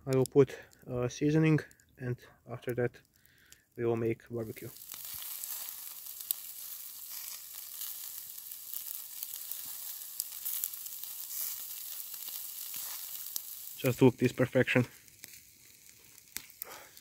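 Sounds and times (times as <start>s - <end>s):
meat sizzling on a grill: 4.4s - 17.0s.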